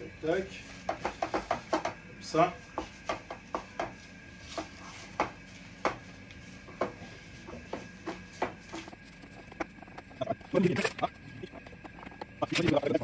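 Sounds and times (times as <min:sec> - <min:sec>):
faint steady hum: 0:00.0 - 0:13.0
baking paper and pastry crackles: 0:03.9 - 0:09.4.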